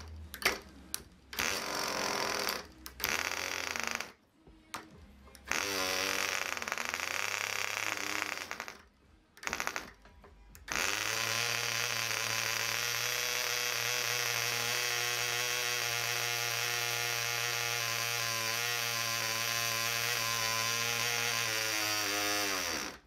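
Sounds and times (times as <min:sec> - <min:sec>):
model engine buzzing: 0:05.5 - 0:08.8, 0:10.7 - 0:23.0.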